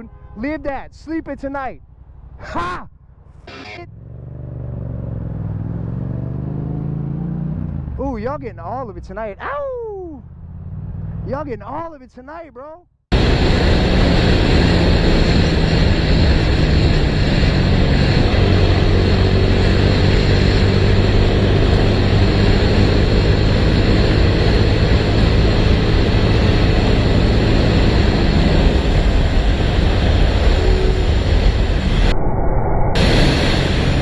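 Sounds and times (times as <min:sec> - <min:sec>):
motorcycle engine drone: 0:01.7 - 0:11.6, 0:13.1 - 0:34.0
wind rush on microphone: 0:13.1 - 0:34.0.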